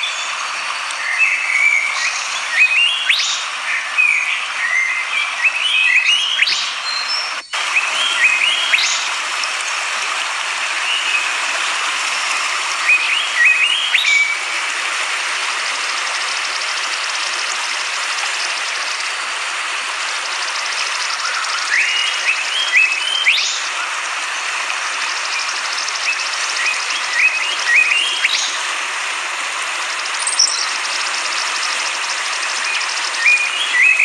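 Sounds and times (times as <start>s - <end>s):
songbird chirping: 1.0s - 9.8s, 30.2s - 34.0s
river water rushing over rocks: 7.6s - 26.0s.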